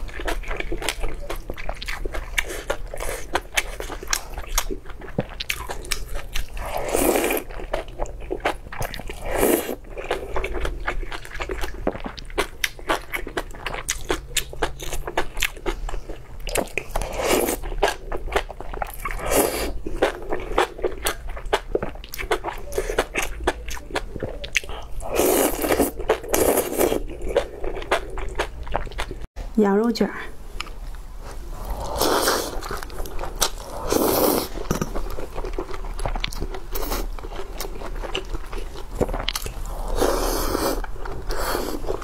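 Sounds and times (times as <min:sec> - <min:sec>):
wet chewing with crunches: 0:00.0 - 0:29.3, 0:30.6 - 0:42.0
slurping: 0:24.2 - 0:28.4, 0:31.2 - 0:42.0.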